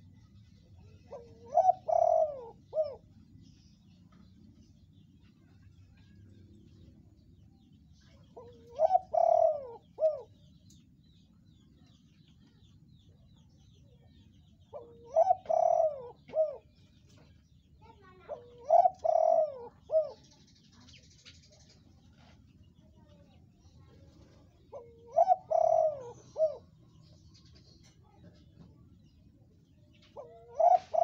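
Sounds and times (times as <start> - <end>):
dove cooing: 1.0 - 3.2, 8.3 - 10.4, 14.7 - 16.8, 18.3 - 20.3, 24.4 - 26.8, 30.0 - 31.0.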